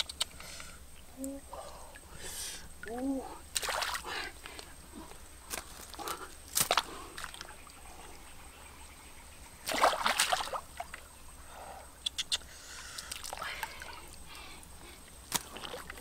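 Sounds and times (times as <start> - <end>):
sharp clicks: 0.0 - 0.4, 12.0 - 12.4
shallow water sloshing and splashing: 3.5 - 4.6, 9.6 - 11.1, 13.0 - 16.0.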